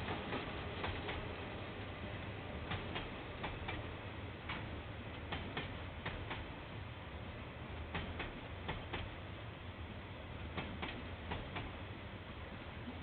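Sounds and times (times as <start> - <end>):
train wheels clicking over rail joint: 0.0 - 1.3, 2.6 - 6.6, 7.8 - 9.2, 10.5 - 11.9.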